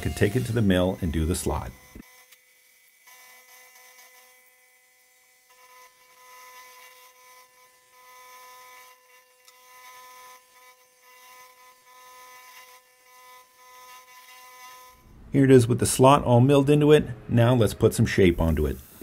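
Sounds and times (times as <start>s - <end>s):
hiss of metal chips being cut: 0.0s - 1.7s.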